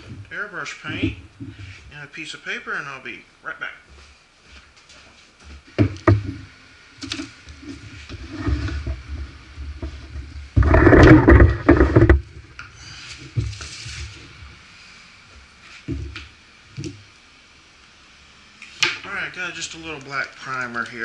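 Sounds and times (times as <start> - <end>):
knocks on wooden workbench: 5.8 - 6.4
compressor scraping across bench: 5.8 - 14.5.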